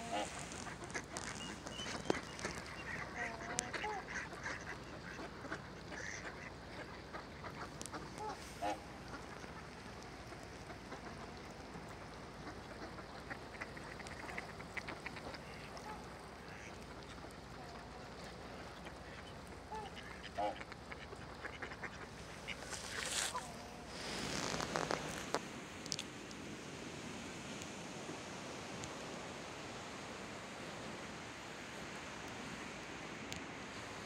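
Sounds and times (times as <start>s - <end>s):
ducks quacking: 0.0s - 25.3s
soft duck chatter: 0.0s - 26.0s
steady background hiss: 0.0s - 34.0s.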